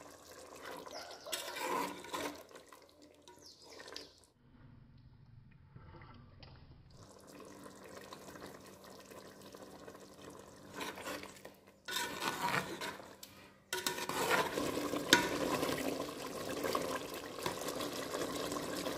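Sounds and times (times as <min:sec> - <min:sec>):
spatula stirring thick curry: 0:00.0 - 0:04.2, 0:10.6 - 0:18.9.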